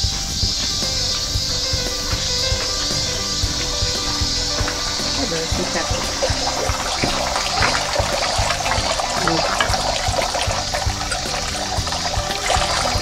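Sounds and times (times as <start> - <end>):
background music with steady beat: 0.0 - 13.0
water trickling into stone basin: 2.5 - 13.0.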